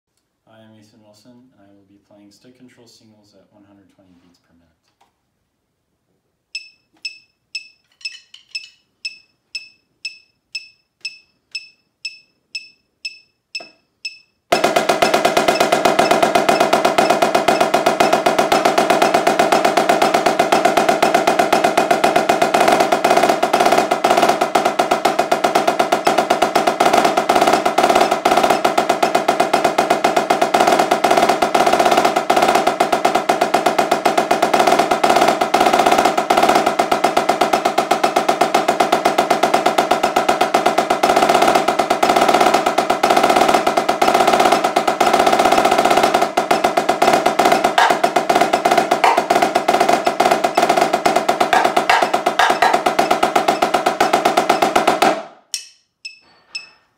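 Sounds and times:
metronome clicking: 6.6s - 17.2s, 55.5s - 56.7s
snare drum rapid strokes: 14.5s - 55.3s.

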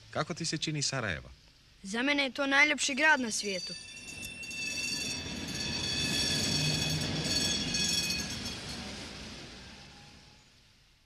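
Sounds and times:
rail wheels squealing: 3.6s - 10.7s
rail vehicle rumbling past: 3.6s - 11.0s.

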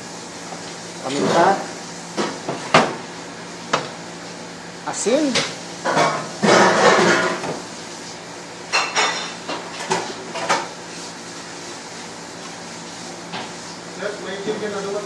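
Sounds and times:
kitchen utensils clinking: 5.3s - 7.5s, 8.7s - 10.7s.

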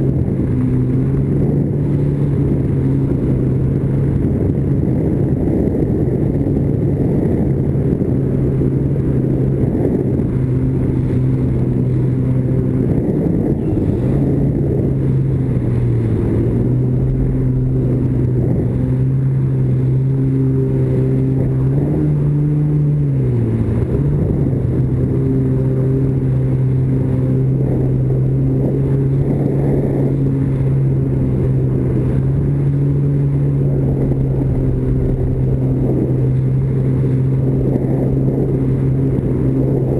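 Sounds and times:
jet ski engine running: 0.0s - 39.9s
water rushing: 13.7s - 39.9s.

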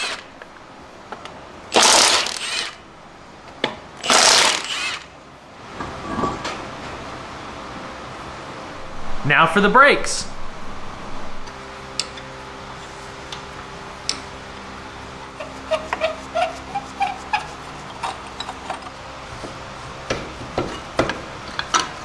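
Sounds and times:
small squeaks: 15.4s - 18.2s.

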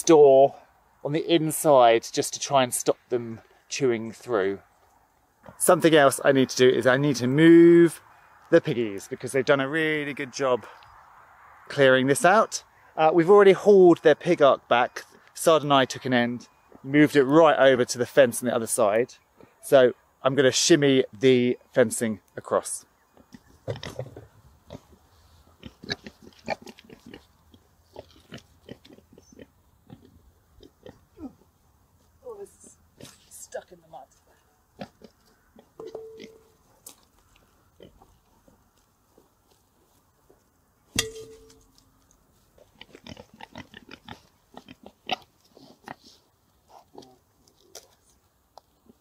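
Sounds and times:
pigs grunting: 23.2s - 25.0s, 25.6s - 27.3s, 27.9s - 31.4s, 42.6s - 47.3s
sharp ringing knock: 35.8s - 36.5s, 41.0s - 41.6s.

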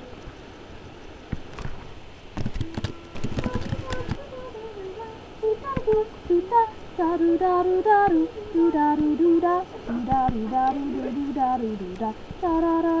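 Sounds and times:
sharp clicks: 2.4s - 4.2s
high voice singing: 2.6s - 13.0s.

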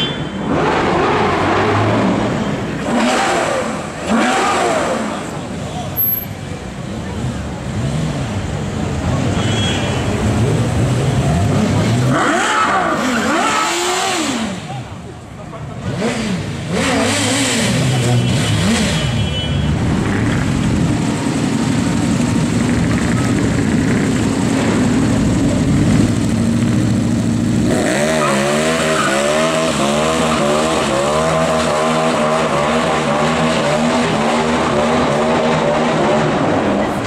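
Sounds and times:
loud street traffic: 0.0s - 37.0s
three-wheeler engine revving in blips: 0.5s - 5.4s, 10.3s - 14.8s, 15.8s - 37.0s
motorcycle engine revving: 10.4s - 14.8s, 15.8s - 19.2s.

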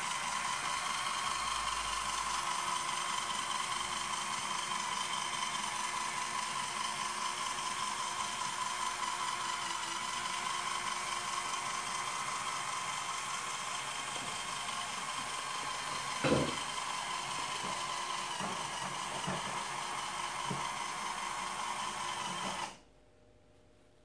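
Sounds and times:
electric motor whirring: 0.0s - 22.8s
thump: 16.2s - 16.6s.

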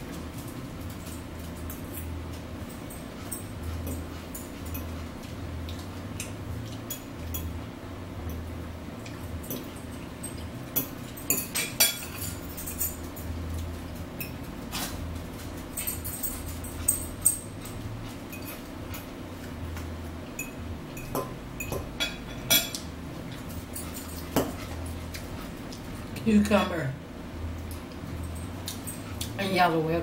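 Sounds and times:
low steady hum: 0.0s - 30.0s
chewing: 2.8s - 7.4s, 23.3s - 26.1s
fork clinking against salad bowl: 20.4s - 22.9s.

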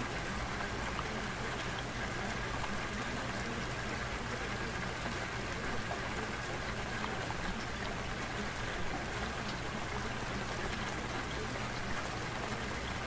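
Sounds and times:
running water: 0.0s - 13.0s.

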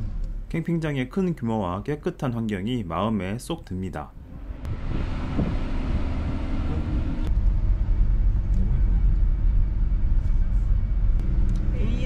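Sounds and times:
car cabin road and engine rumble: 4.1s - 12.0s.

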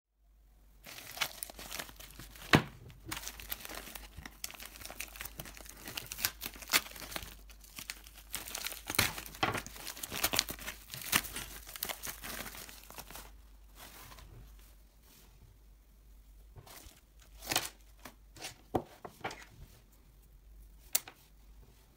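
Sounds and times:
plastic mailer crinkling: 0.8s - 13.4s.

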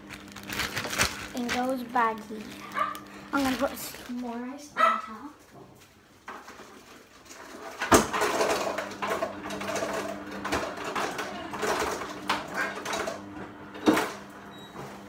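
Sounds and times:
ice cubes clattering: 0.0s - 4.4s
plastic bag crinkling: 0.0s - 4.7s.

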